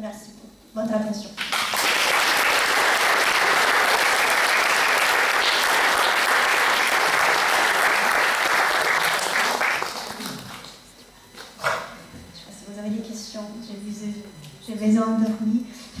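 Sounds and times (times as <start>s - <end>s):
audience applauding: 1.4s - 10.7s.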